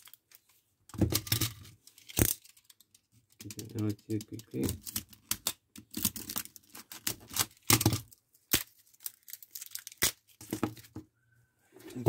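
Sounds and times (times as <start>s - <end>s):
plastic packaging tearing: 4.5s - 10.8s.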